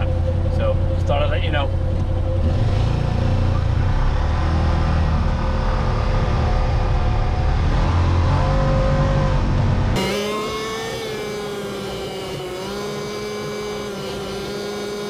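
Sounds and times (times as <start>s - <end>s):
vehicle engine accelerating: 0.0s - 15.0s.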